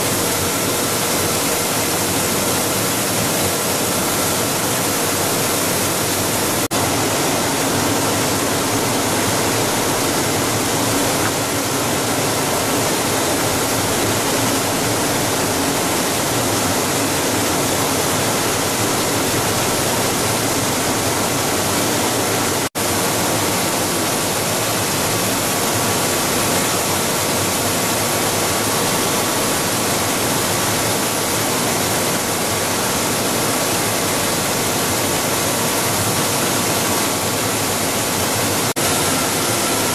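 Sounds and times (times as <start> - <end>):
faint steady machine whines: 0.0 - 39.9
loud rushing machine noise: 36.0 - 39.9.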